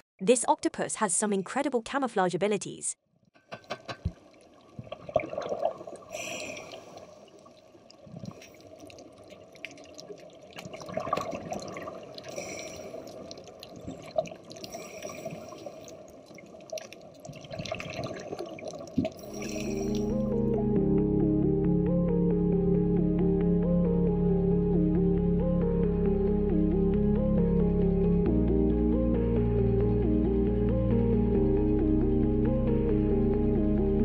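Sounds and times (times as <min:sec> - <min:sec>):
underwater clicks: 0:03.4 - 0:05.6
bubbling: 0:03.4 - 0:20.4.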